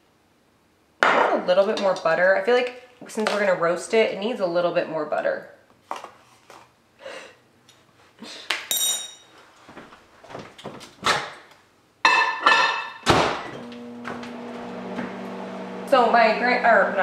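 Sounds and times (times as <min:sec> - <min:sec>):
microwave humming: 0:13.0 - 0:17.0
microwave door shutting: 0:13.1 - 0:15.4.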